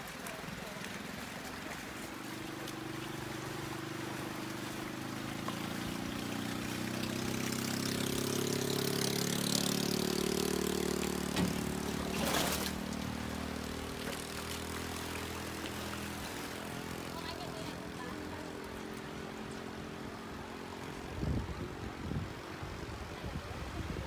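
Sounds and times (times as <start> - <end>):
motor droning past: 2.2 - 20.9.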